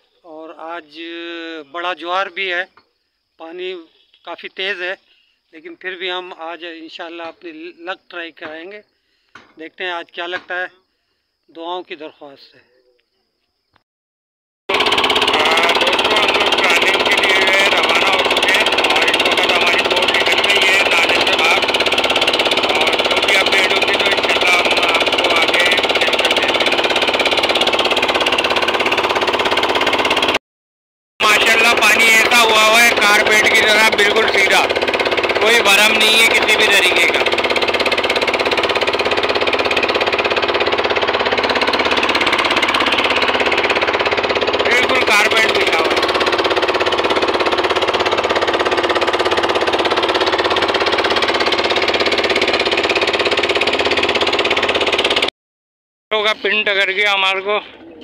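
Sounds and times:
boat engine running: 14.7s - 30.4s, 31.2s - 55.3s.

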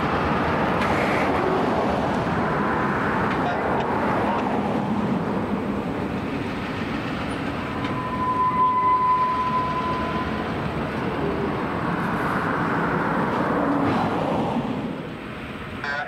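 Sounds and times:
wheels rumbling on rail: 0.0s - 16.0s
high steady wheel squeal: 6.1s - 13.9s.

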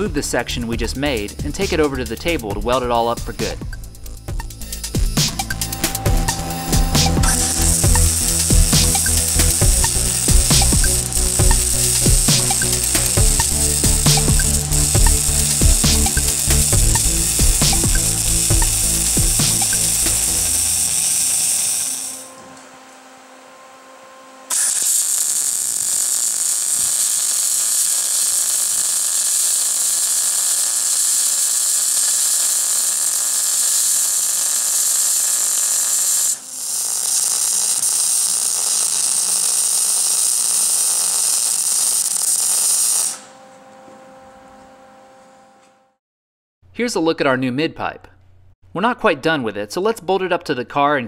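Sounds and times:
welder arc hissing: 1.0s - 22.4s, 24.5s - 43.4s.

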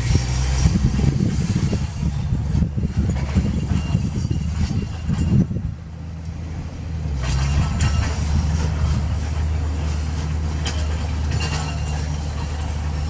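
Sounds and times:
sharp metallic clanks: 0.0s - 6.4s, 7.1s - 13.0s
heavy diesel engines humming: 0.0s - 13.0s.

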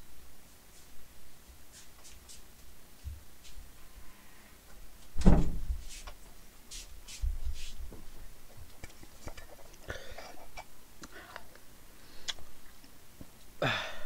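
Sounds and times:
heavy thump: 5.2s - 5.8s.

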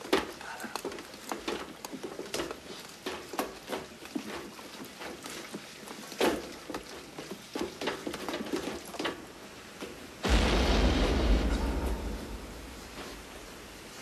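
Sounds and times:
loud blast with deep rumble: 10.2s - 13.8s.

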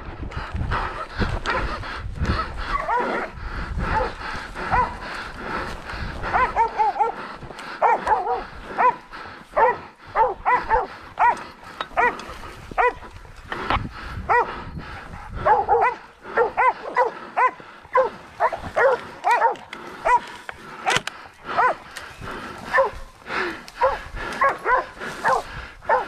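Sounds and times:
dogs barking in high yelps: 2.6s - 5.1s, 6.2s - 13.2s, 14.2s - 14.6s, 15.3s - 26.0s.

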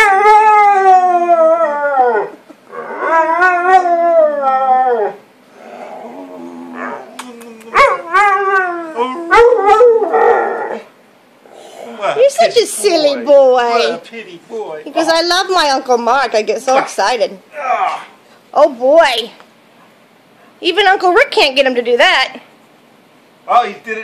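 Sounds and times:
dog howling: 0.0s - 10.9s.

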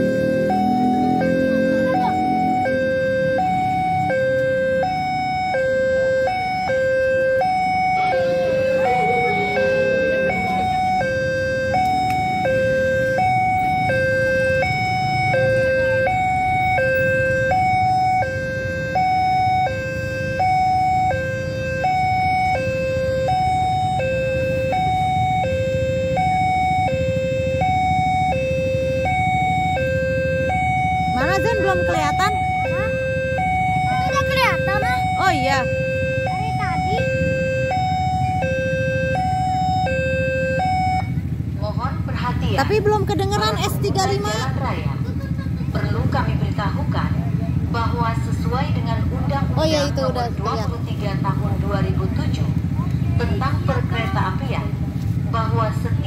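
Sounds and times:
two-tone level crossing alarm: 0.0s - 41.4s.

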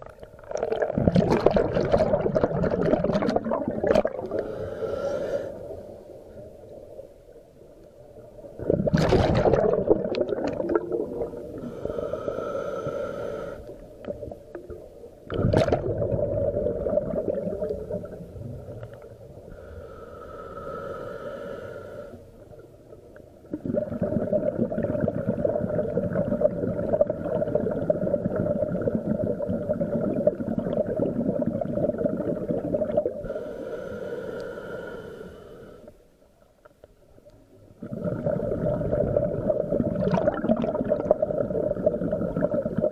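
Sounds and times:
exhaled bubbles rumbling: 0.0s - 4.5s, 8.2s - 12.0s, 14.0s - 19.5s, 22.9s - 33.3s, 37.7s - 42.9s
scuba regulator hissing inhale: 4.3s - 6.2s, 11.2s - 13.9s, 19.4s - 22.4s, 33.2s - 36.0s.

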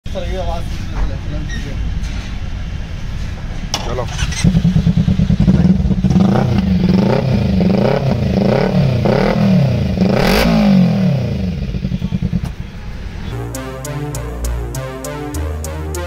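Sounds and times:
motorcycle engine revving: 3.8s - 13.6s.

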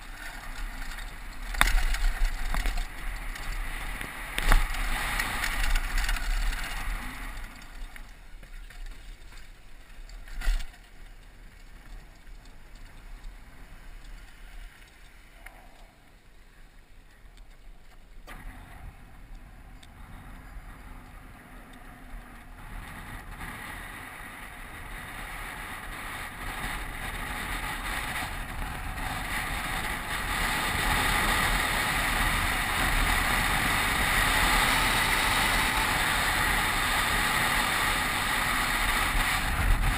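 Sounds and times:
bike tyre and frame noise: 0.0s - 39.9s
wind rush on microphone: 18.3s - 39.9s.

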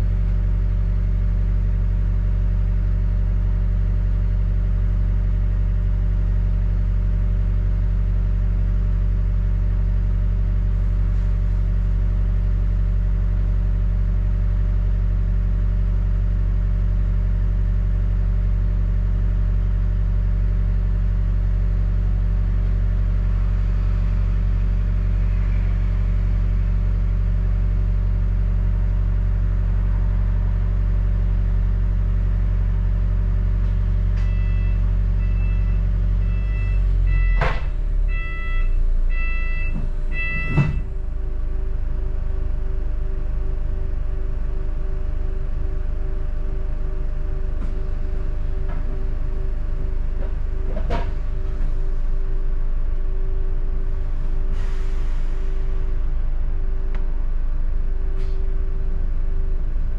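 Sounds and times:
bus engine droning: 0.0s - 59.9s.

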